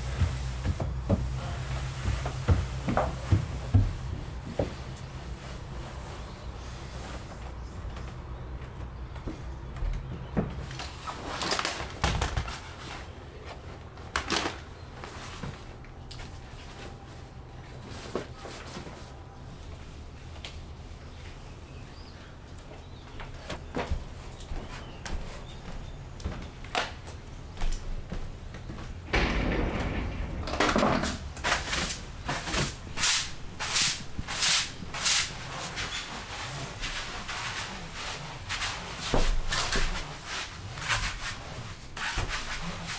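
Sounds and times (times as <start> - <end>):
cloth wiping over mats: 0.0 - 7.5, 33.0 - 42.9
rustling: 28.0 - 42.9.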